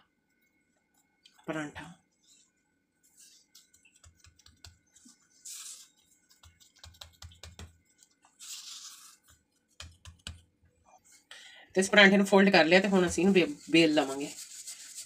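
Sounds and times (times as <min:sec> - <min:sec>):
hands patting dough: 0:03.4 - 0:10.7, 0:12.7 - 0:14.4.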